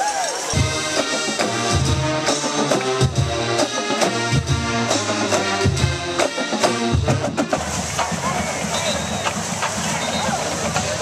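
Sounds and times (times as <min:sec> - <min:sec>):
brass and woodwinds: 0:00.0 - 0:11.0
steady drum beat: 0:00.5 - 0:11.0.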